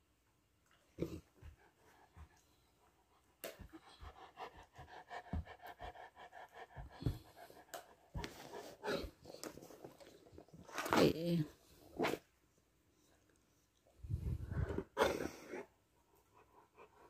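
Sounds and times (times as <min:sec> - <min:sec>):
dog panting: 0:01.3 - 0:10.1, 0:16.0 - 0:17.0.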